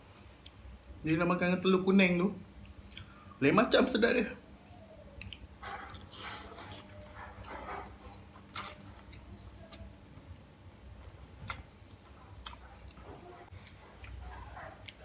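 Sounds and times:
person chewing: 0:05.2 - 0:10.4, 0:11.0 - 0:15.0.

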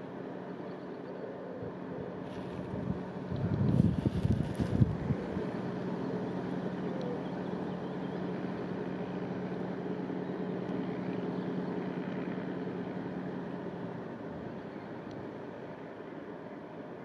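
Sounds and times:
ferry engine humming: 0:00.0 - 0:17.0.

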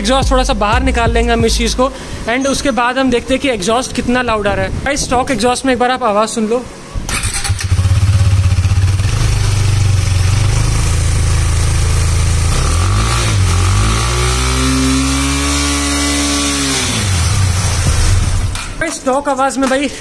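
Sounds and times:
motorcycle engine revving: 0:07.1 - 0:18.6.

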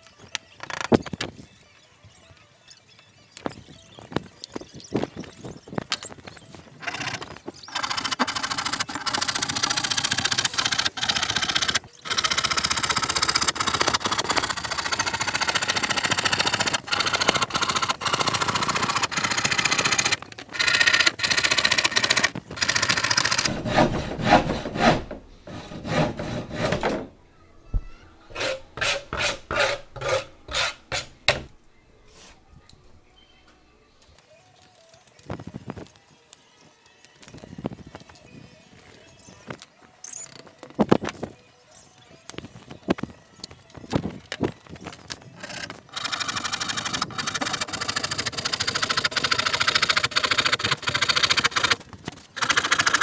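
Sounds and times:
handsaw cutting plywood: 0:06.9 - 0:27.0, 0:28.3 - 0:31.5, 0:45.4 - 0:51.8, 0:52.4 - 0:53.0.

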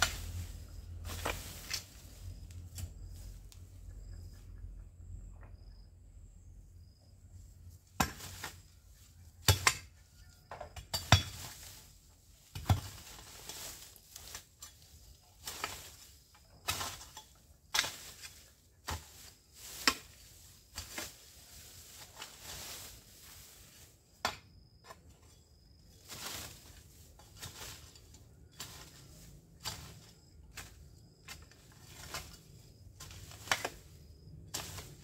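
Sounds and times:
hoe chopping into ground: 0:00.0 - 0:02.0, 0:07.9 - 0:08.6, 0:09.4 - 0:10.0, 0:10.7 - 0:11.8, 0:12.4 - 0:25.1, 0:26.0 - 0:35.0.

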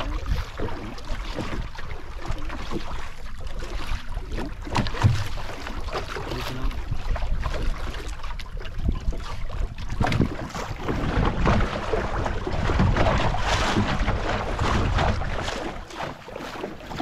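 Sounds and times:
wind buffeting microphone: 0:00.0 - 0:01.8, 0:04.4 - 0:16.0
water sloshing against boat hull: 0:00.0 - 0:17.0.

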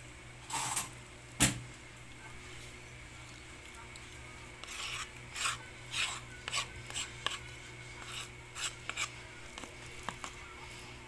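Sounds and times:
wooden spatula scraping rice: 0:04.6 - 0:10.8.

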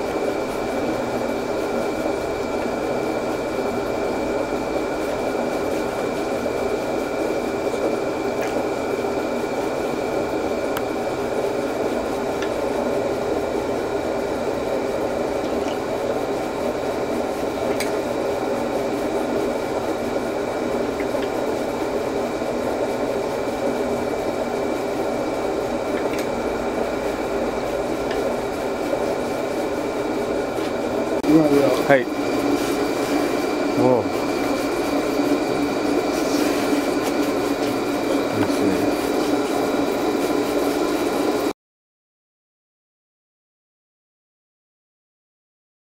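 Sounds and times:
faint high machine whine: 0:00.0 - 0:41.5
knife grinding on whetstone: 0:32.3 - 0:33.6, 0:34.3 - 0:39.6.

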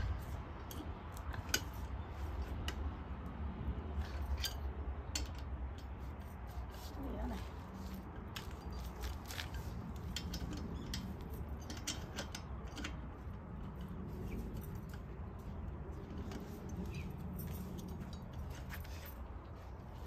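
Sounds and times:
steady low rumble: 0:00.0 - 0:20.0
tools clicking and clinking: 0:03.8 - 0:06.7, 0:07.7 - 0:19.6.

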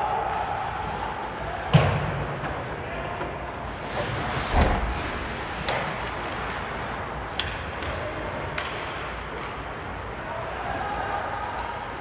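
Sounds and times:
skates scraping on ice: 0:03.7 - 0:08.0.

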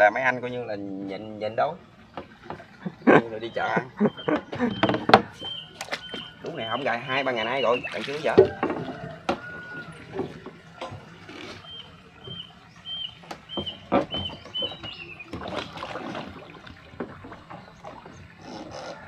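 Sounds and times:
water splashing: 0:00.0 - 0:19.0
bird chirping: 0:02.8 - 0:08.2, 0:11.6 - 0:15.4
fish trap knocking: 0:07.9 - 0:11.0.

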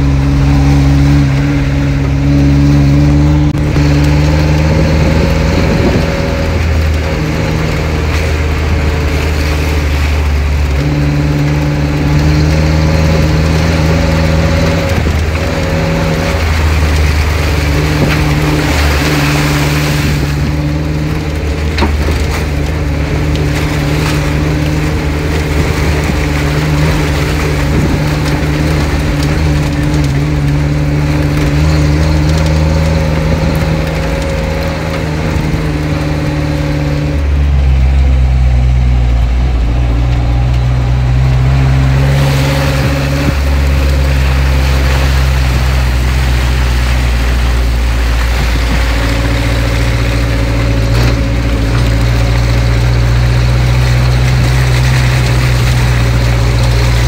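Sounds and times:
suv engine running under load: 0:00.0 - 0:57.0
tyres crunching over gravel and mud: 0:00.0 - 0:57.0.

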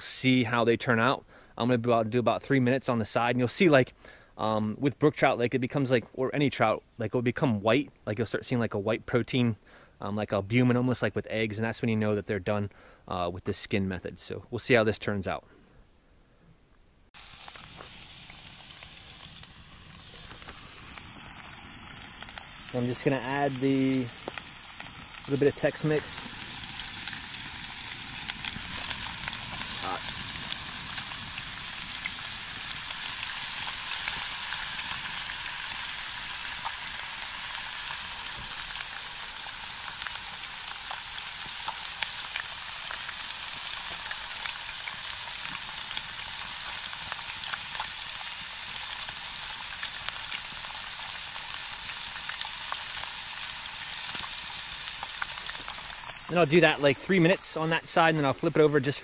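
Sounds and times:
fish sizzling in a pan: 0:17.2 - 0:58.8.

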